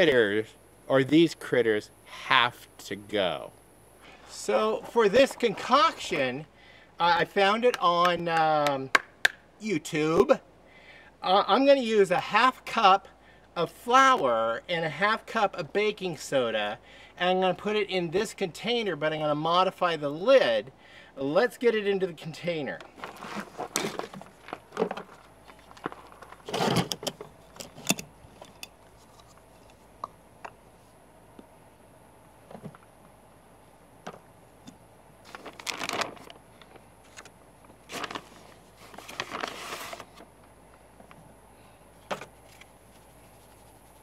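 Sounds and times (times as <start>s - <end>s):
plastic bag rustling: 22.9s - 26.9s, 35.2s - 36.4s, 37.0s - 40.2s.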